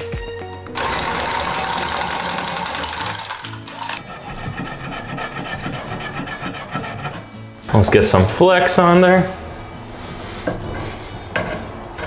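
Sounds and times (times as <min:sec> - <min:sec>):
tubing cutter cutting pipe: 0:00.7 - 0:07.3.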